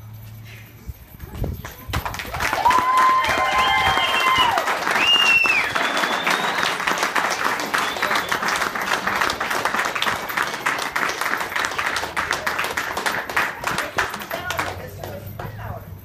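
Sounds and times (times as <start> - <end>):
people applauding: 1.6 - 15.7.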